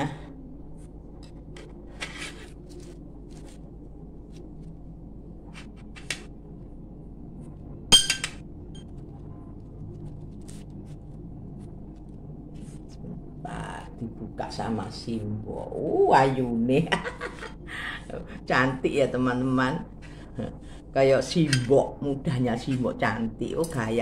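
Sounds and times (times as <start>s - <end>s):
steady low hum: 0.0s - 24.0s
tableware clinking: 7.9s - 8.4s.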